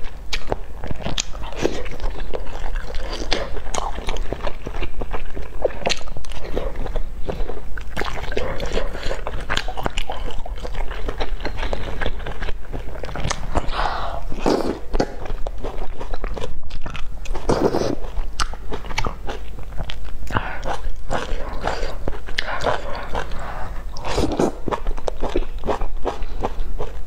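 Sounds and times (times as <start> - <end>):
wet chewing with mouth clicks: 0.0 - 27.0
slurping noodles: 13.5 - 15.2, 17.4 - 18.1, 20.4 - 24.8.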